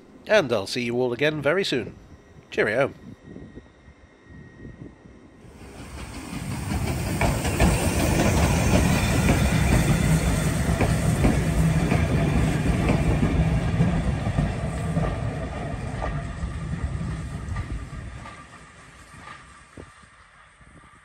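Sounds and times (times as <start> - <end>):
steam hiss: 5.4 - 13.3
train wheels clacking on rails: 5.5 - 20.3.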